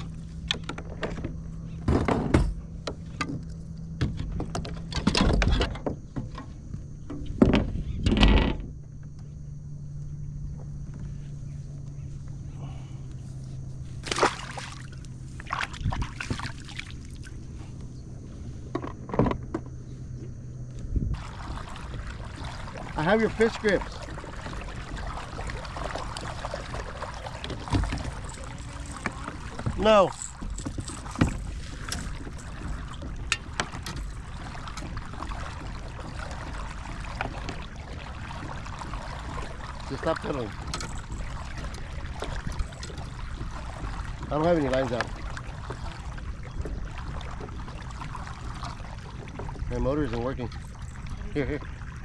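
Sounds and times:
steady low hum: 0:00.0 - 0:52.0
steady low rumble: 0:08.8 - 0:52.0
water splashing: 0:14.0 - 0:17.7, 0:21.2 - 0:52.0
gear clicking and knocking: 0:27.4 - 0:34.9.

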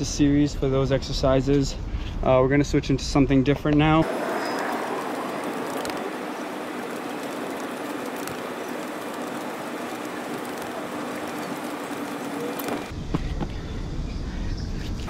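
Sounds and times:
distant traffic: 0:03.8 - 0:13.8
faint steady hum: 0:04.0 - 0:15.0.

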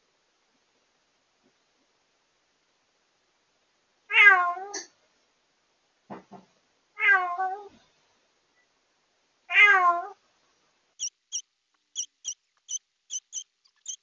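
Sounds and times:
cat meowing: 0:09.5 - 0:10.2.

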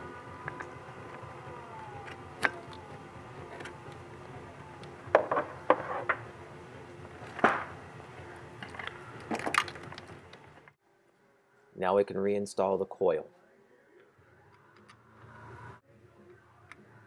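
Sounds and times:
steady hum: 0:00.0 - 0:11.8.

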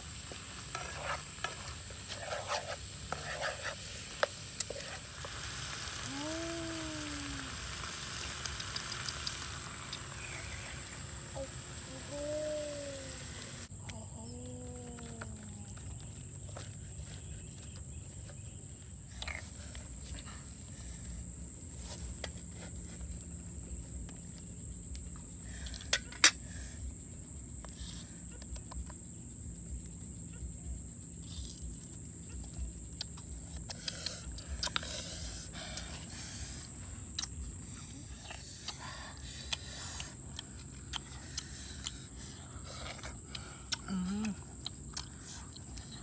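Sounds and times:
pork sizzling in a frying pan: 0:00.0 - 0:13.7.

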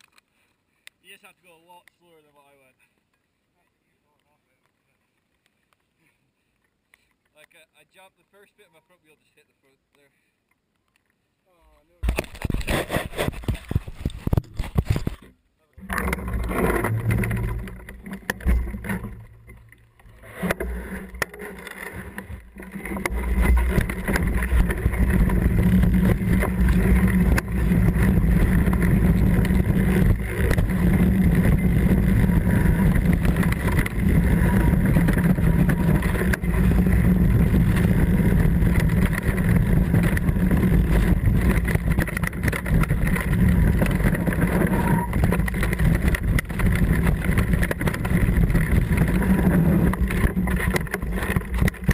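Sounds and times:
bike tyres and frame rattling: 0:12.0 - 0:51.9
wind buffeting microphone: 0:22.0 - 0:51.9.

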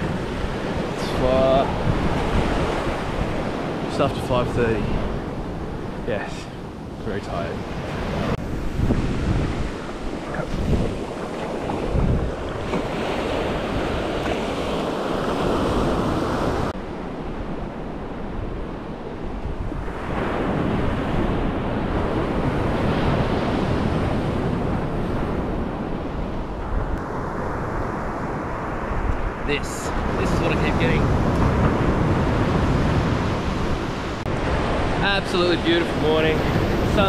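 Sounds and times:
surf breaking on beach: 0:00.0 - 0:16.7, 0:27.2 - 0:37.0.

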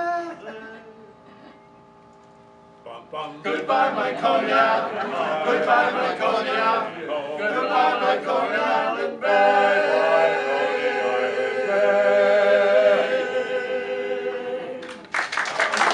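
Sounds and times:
men's chorus singing a cappella: 0:03.1 - 0:14.9.

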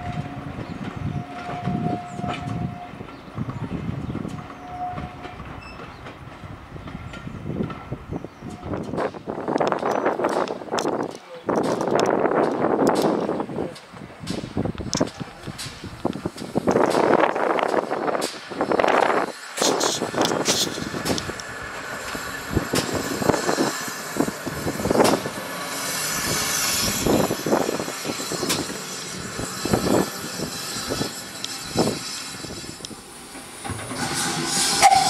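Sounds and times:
steam locomotive moving slowly: 0:00.0 - 0:35.0
steam hiss: 0:15.6 - 0:35.0.

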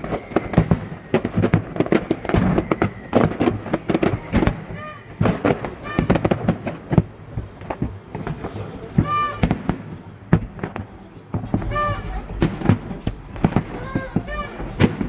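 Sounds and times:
fireworks shells bursting: 0:00.0 - 0:15.0.

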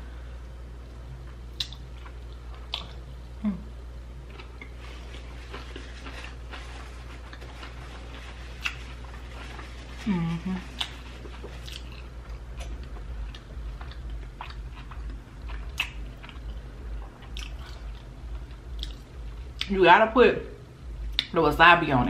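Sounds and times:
person chewing: 0:01.5 - 0:03.3, 0:04.2 - 0:19.7
person humming mm: 0:03.4 - 0:03.8, 0:10.0 - 0:10.8.

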